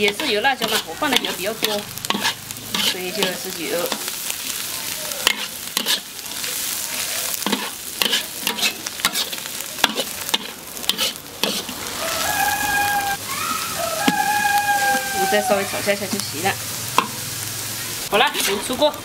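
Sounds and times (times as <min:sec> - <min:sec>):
frying sizzle: 0:00.0 - 0:19.0
spatula scraping wok: 0:00.0 - 0:19.0
long pitched call: 0:12.0 - 0:15.9.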